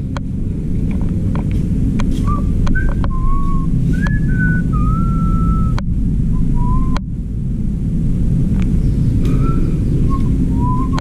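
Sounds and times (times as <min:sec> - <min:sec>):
loud low rumble: 0:00.0 - 0:11.0
person whistling a tune: 0:02.2 - 0:05.8, 0:06.6 - 0:07.0, 0:09.3 - 0:11.0.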